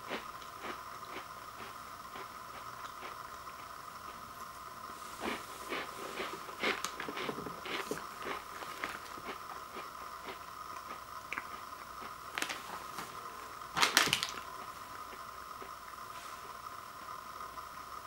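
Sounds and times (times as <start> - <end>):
plastic pouch crinkling: 12.3 - 13.0, 13.7 - 14.7.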